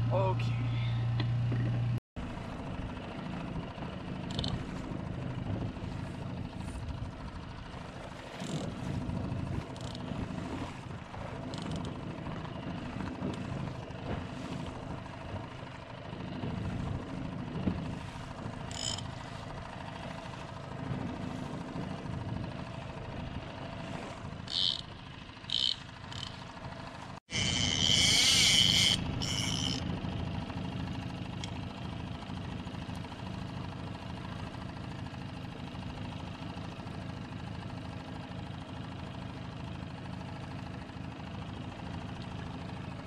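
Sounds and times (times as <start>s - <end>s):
outboard motor running: 0.0s - 43.0s
water slapping against hull: 1.3s - 29.2s.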